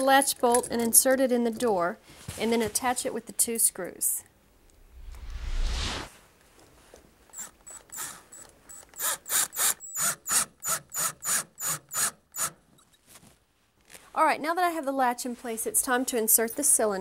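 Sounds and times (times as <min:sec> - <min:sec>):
drill driving screws: 0:07.3 - 0:12.6.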